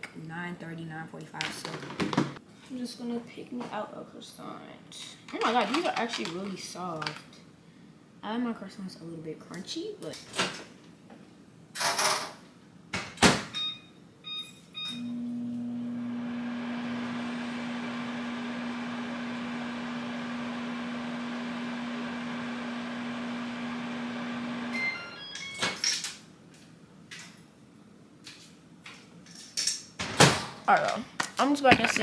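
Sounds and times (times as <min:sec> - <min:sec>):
microwave keypad beeps: 0:13.6 - 0:15.2, 0:24.7 - 0:25.8
microwave oven humming: 0:13.6 - 0:25.9.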